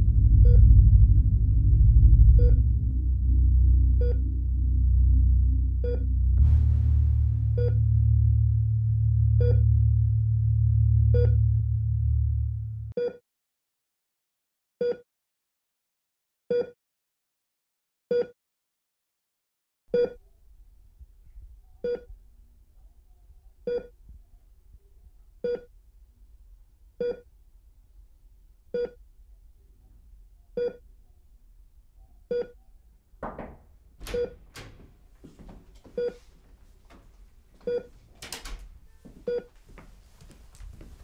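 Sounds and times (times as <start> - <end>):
patient monitor beeping: 23.7 - 23.9, 25.5 - 25.7, 34.1 - 34.4, 36.0 - 36.2, 37.6 - 37.9, 39.3 - 39.5.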